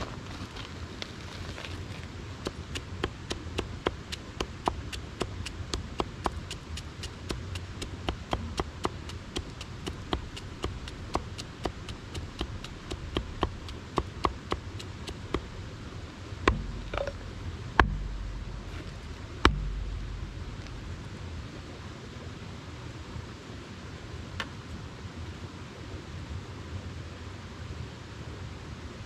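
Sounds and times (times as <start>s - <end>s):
hatchet chopping wood: 2.4s - 15.7s, 16.5s - 21.0s
heavy chops: 2.5s - 15.7s, 16.5s - 21.1s
low rumble: 15.3s - 21.8s.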